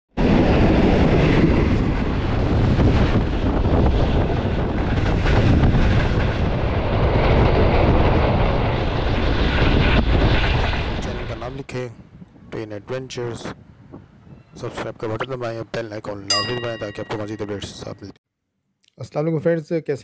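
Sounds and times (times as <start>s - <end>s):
train wheels rushing on rails: 0.6s - 8.2s.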